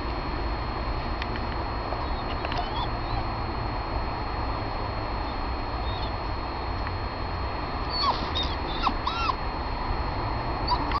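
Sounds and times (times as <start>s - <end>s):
dog whining: 2.0s - 3.4s, 5.3s - 6.2s, 7.8s - 9.4s, 10.6s - 11.0s.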